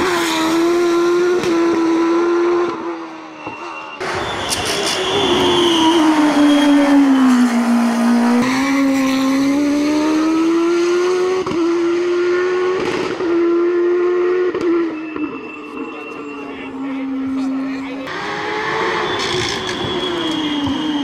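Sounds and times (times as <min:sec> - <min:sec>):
race car engine passing: 0:04.0 - 0:20.2.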